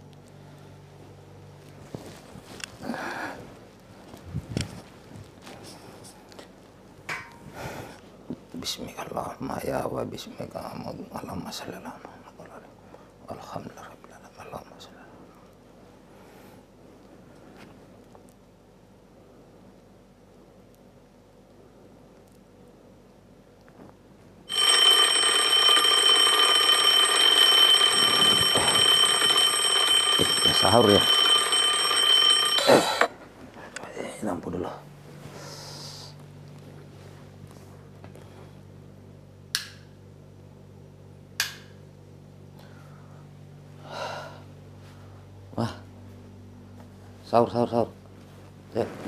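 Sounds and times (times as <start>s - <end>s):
shrill alarm ringing: 24.5s - 33.1s.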